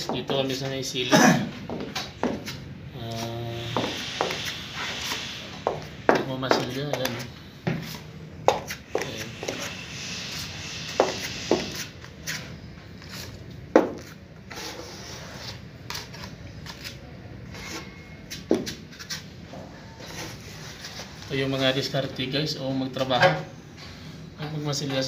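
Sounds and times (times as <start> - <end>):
putty knife scraping compound: 14.0 - 19.2.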